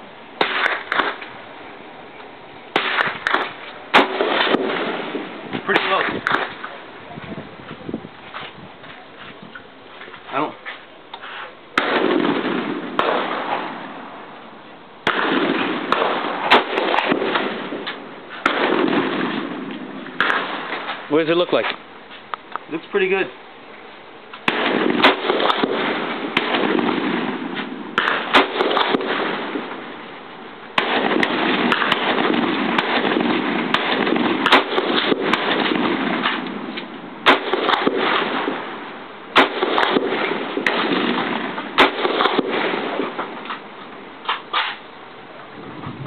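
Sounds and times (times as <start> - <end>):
rifle shots: 0.4 - 1.4, 2.7 - 6.8, 11.7 - 14.0, 15.0 - 21.1, 24.4 - 29.9, 30.7 - 43.7.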